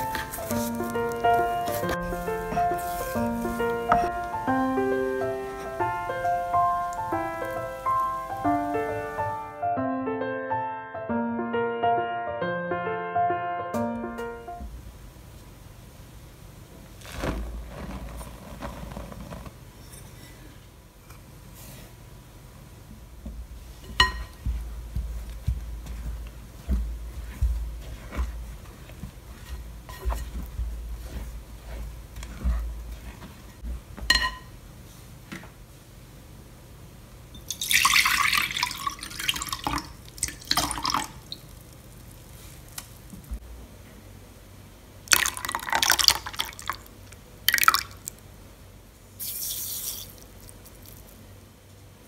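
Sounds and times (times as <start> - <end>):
glass bowl clink: 23.8 - 24.4, 34.1 - 34.5
spatula scraping in glass bowl: 27.2 - 34.3
liquid pouring and splashing: 37.5 - 41.8, 45.1 - 46.9, 47.5 - 48.2
granules hissing onto liquid: 49.2 - 51.0.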